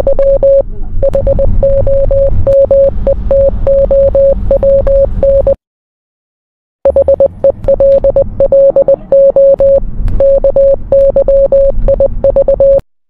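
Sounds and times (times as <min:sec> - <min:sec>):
low crackling rumble: 0:00.0 - 0:05.3
morse code beeps: 0:00.0 - 0:05.6, 0:06.8 - 0:12.8.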